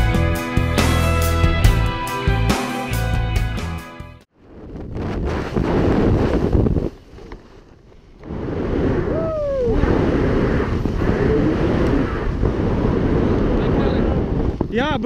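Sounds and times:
wind buffeting microphone: 4.3s - 15.0s
person whooping shout: 9.1s - 9.8s.

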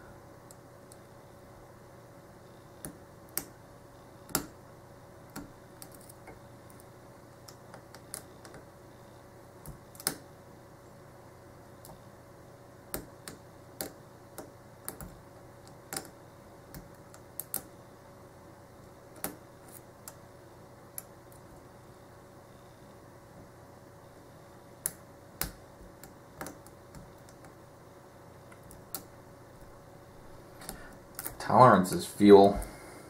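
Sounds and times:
faint steady hum: 0.0s - 33.0s.

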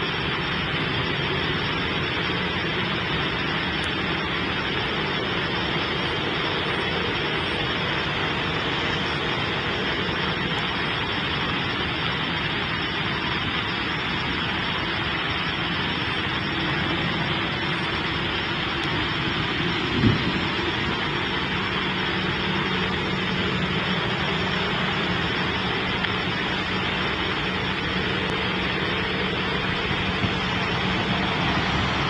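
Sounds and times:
jet engines at low thrust: 0.0s - 32.0s.

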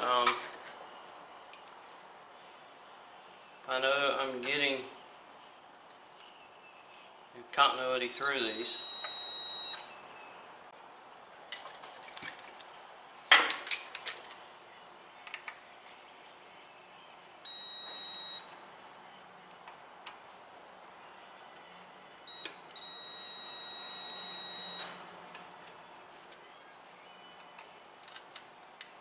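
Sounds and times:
multimeter continuity beeps: 8.5s - 10.0s, 17.4s - 18.5s, 22.3s - 24.9s.

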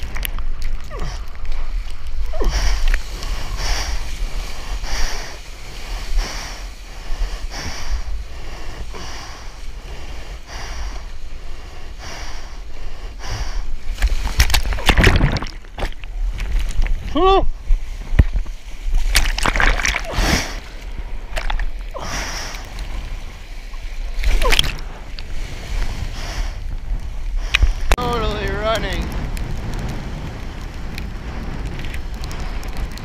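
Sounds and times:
low wind-like rumble: 0.0s - 33.0s
water rushing past surfboard: 13.8s - 22.0s
whitewater splashing: 13.8s - 26.2s.

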